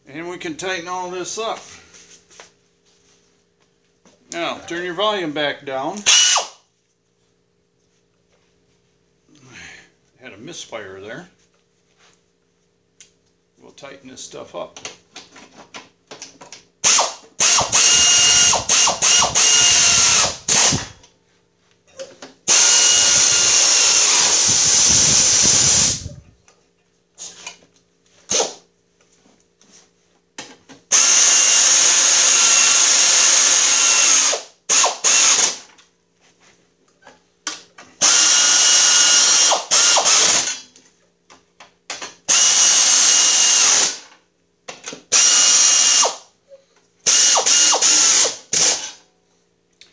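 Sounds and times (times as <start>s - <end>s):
pneumatic air ratchet whirring: 6.0s - 6.6s, 16.8s - 21.0s, 22.5s - 26.2s, 28.3s - 28.6s, 30.9s - 35.7s, 38.0s - 40.6s, 42.3s - 44.1s, 45.1s - 46.3s, 47.0s - 49.0s.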